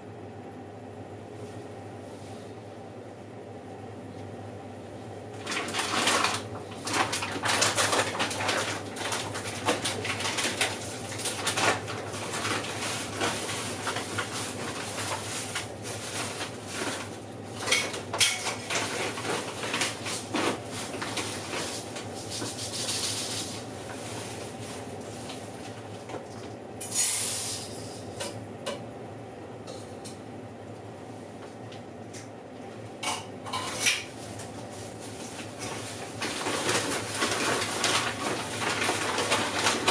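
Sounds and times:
oven humming: 0.0 - 39.9.

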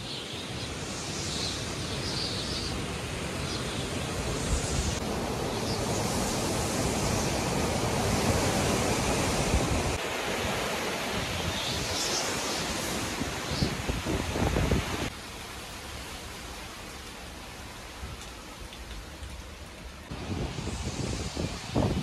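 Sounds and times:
gusty storm wind: 0.0 - 15.2, 16.6 - 22.0
wind buffeting microphone: 4.1 - 12.1, 12.8 - 15.1, 20.1 - 22.0.

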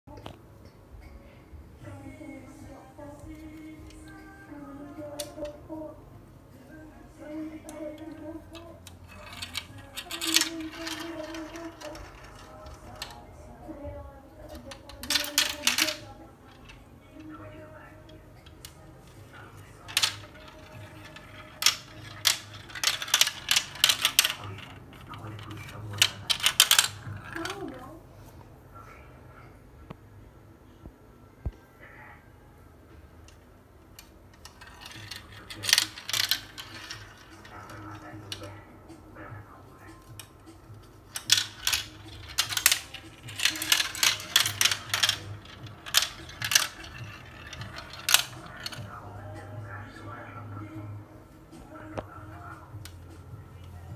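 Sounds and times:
marbles clattering down plastic run: 9.0 - 13.2, 14.5 - 16.8, 19.9 - 27.8, 34.4 - 38.5, 41.1 - 49.0.

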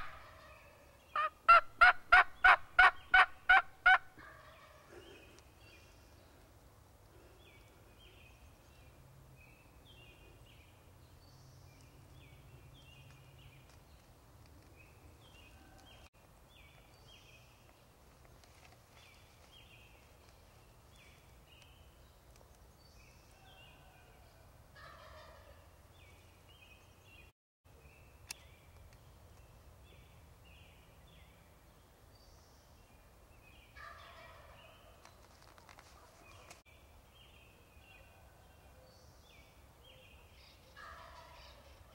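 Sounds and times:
turkey gobbling: 1.2 - 4.8.

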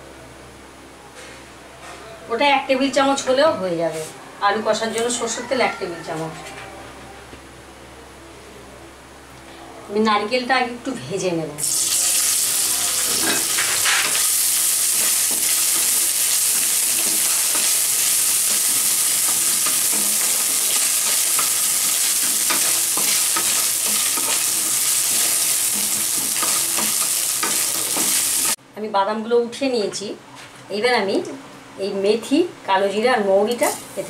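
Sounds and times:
coconut sizzling in oil: 11.6 - 28.6.

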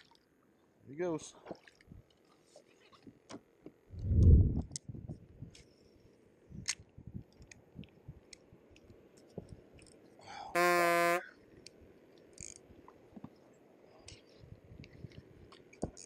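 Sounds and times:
fishing gear clicks: 11.6 - 12.6.

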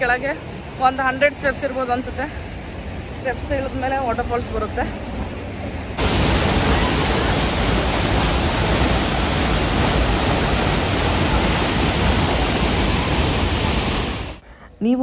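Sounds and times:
waterfall rushing: 6.0 - 14.4
background noise: 14.4 - 15.0.

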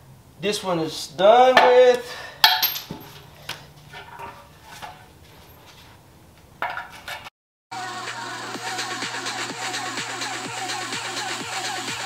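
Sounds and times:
metal tools clinking and clanking: 2.4 - 3.3, 3.9 - 5.9, 6.6 - 7.3.

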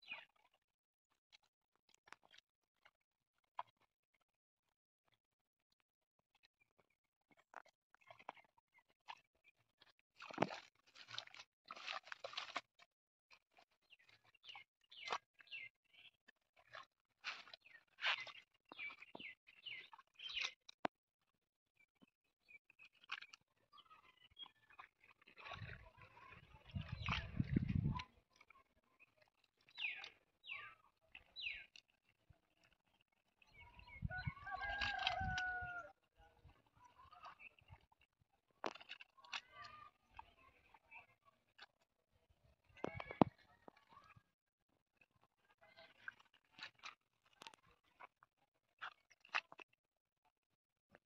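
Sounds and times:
hands squelching through wet mud: 7.4 - 20.7, 22.8 - 41.9, 45.6 - 49.8.

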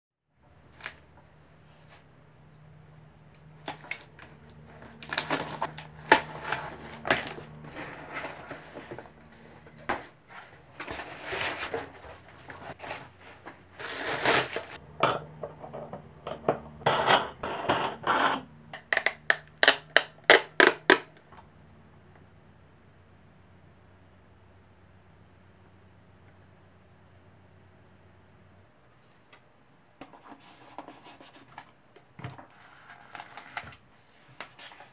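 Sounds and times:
plastic wrapping crinkling: 3.6 - 14.8.

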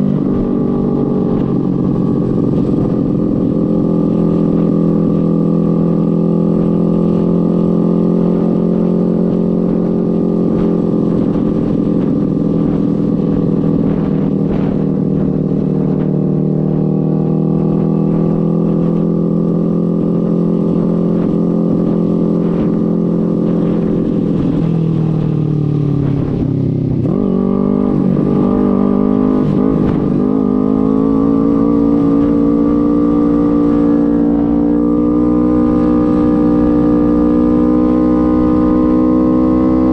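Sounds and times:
motorcycle engine running: 0.0 - 39.9
wind rushing: 8.4 - 39.9.

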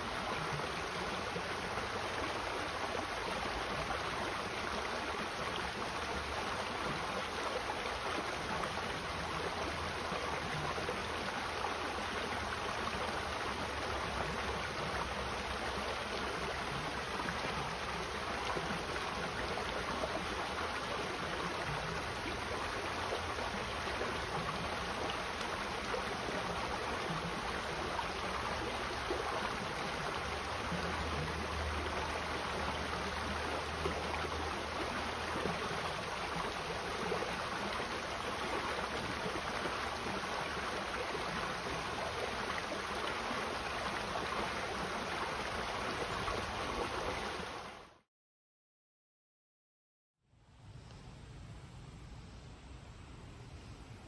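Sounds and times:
creek water trickling over stones: 0.0 - 47.8.

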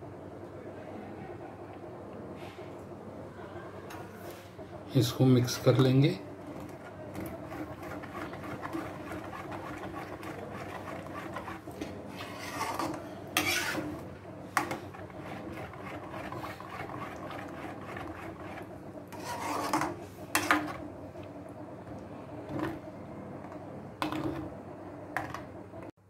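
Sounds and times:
metal spoon scraping metal pot: 7.2 - 14.0, 14.6 - 20.8.

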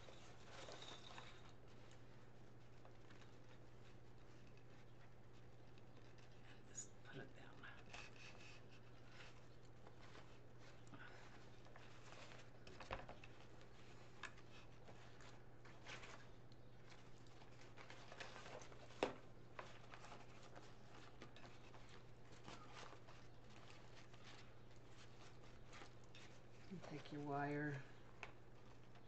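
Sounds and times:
fabric ribbon rustling: 7.6 - 27.3.

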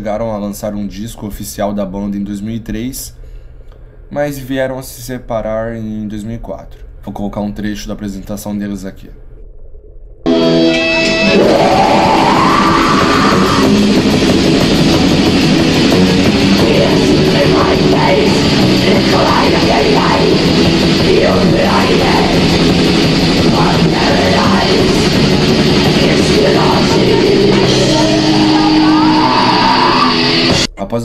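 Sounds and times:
heavy metal band playing live: 10.3 - 30.7.

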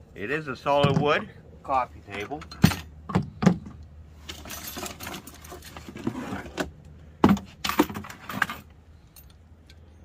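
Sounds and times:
metal tent stakes clinking: 2.0 - 3.2, 4.2 - 6.6.

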